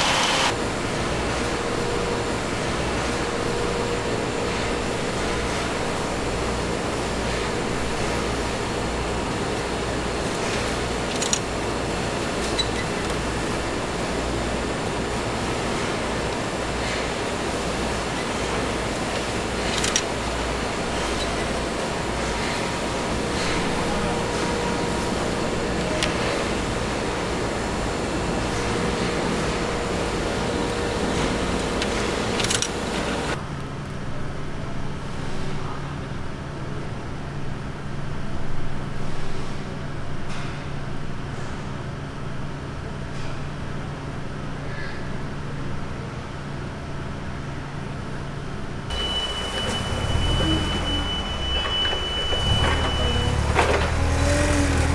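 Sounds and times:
factory hiss: 0.0s - 33.4s, 48.9s - 54.9s
industrial machine noise: 0.0s - 33.5s, 47.0s - 54.9s
faint held tone: 48.9s - 53.5s.

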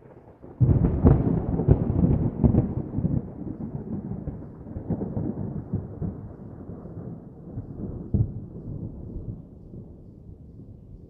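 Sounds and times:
distant thunder rumbling: 0.4s - 10.1s
thunder crack: 0.5s - 9.0s.

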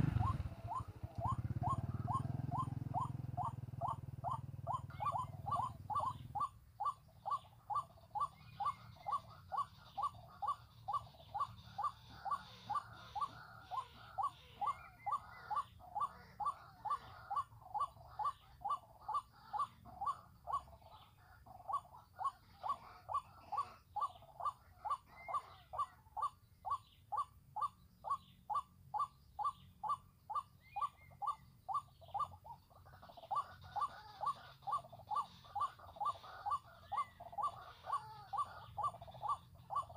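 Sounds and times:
faint high bird chirps: 0.0s - 39.9s
waterhen calling: 0.0s - 39.9s.

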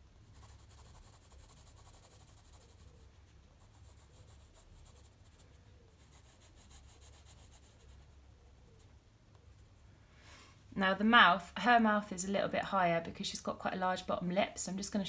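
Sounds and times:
pencil scratching on paper: 0.2s - 9.8s.

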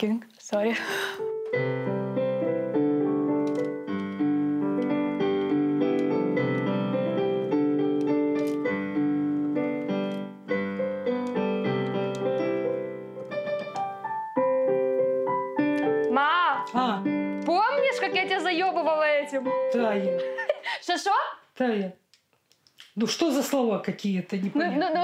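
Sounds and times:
digital piano chords and melody: 0.9s - 20.7s.

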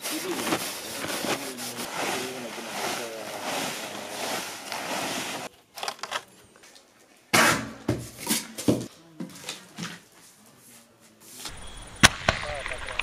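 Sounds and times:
voices: 0.0s - 4.5s, 8.9s - 13.0s
rustling noise: 0.0s - 5.5s.

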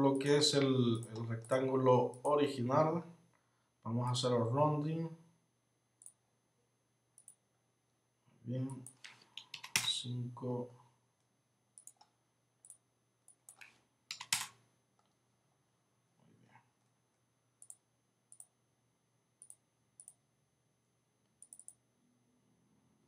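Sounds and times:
computer mouse and keyboard clicks: 8.7s - 10.0s, 11.8s - 15.2s, 21.4s - 21.8s.

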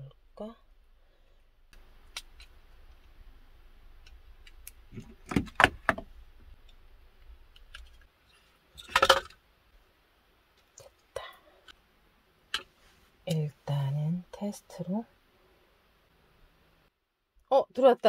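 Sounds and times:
electrical wire connectors clicking: 1.7s - 3.2s, 4.0s - 8.1s.

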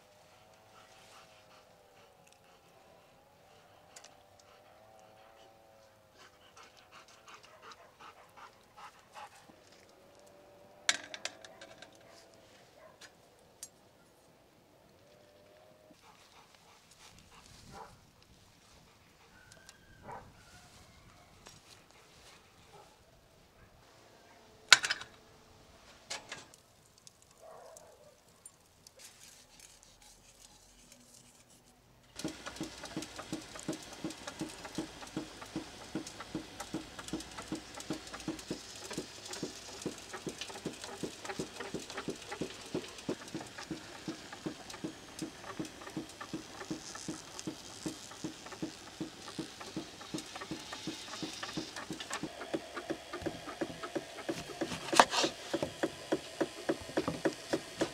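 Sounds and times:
charcoal crackling: 32.1s - 57.9s
rotisserie spit clicking: 32.1s - 57.9s.

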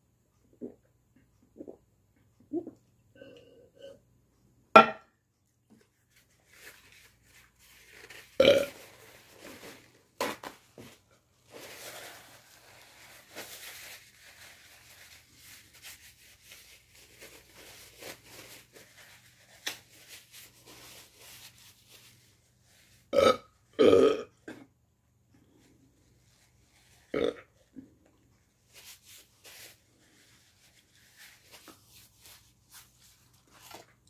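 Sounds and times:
paper towels rustling and tearing: 5.9s - 23.1s, 25.5s - 27.7s, 28.4s - 34.0s
loud burps: 8.4s - 8.8s, 23.1s - 24.7s, 27.1s - 27.5s.

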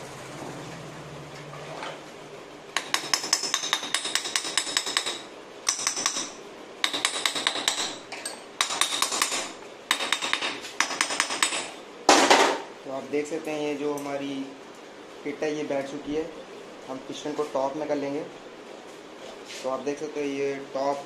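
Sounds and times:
rapid metallic clicking and tapping: 2.8s - 8.0s, 8.6s - 11.7s.

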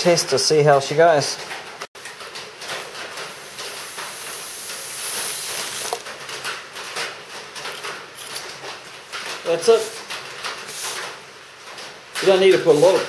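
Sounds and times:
air hissing through tube: 3.4s - 6.0s.

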